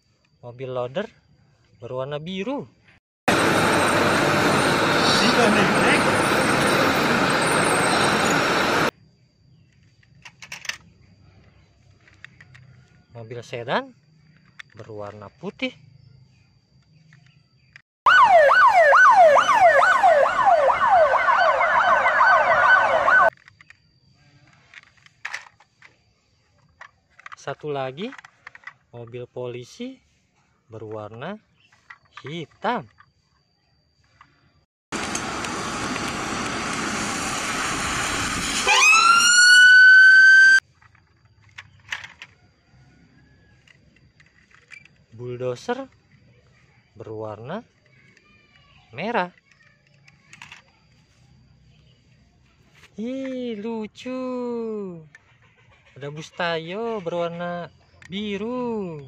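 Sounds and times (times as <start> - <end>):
police car siren: 3.3 - 8.9, 18.1 - 23.3, 35.0 - 40.6
traffic noise: 3.3 - 9.0
plastic toys clicking: 9.9 - 10.8, 23.3 - 23.8, 24.5 - 26.0, 26.6 - 28.8, 40.7 - 42.4, 43.6 - 45.0, 49.3 - 50.8.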